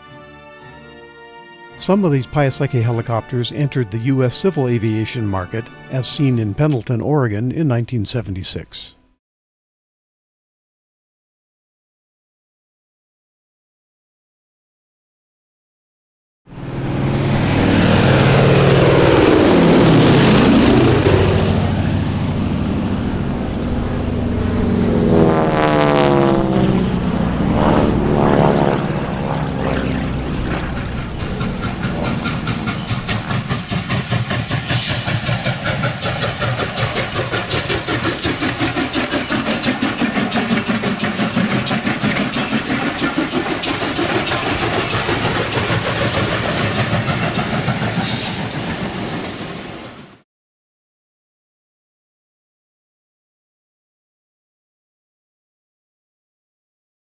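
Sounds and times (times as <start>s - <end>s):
propeller plane droning overhead: 16.5s - 49.5s
steam train wheels clicking: 30.2s - 49.9s.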